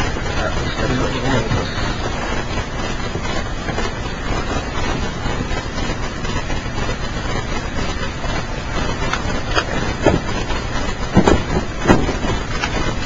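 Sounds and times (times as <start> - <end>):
steady rushing noise: 0.0 - 13.0.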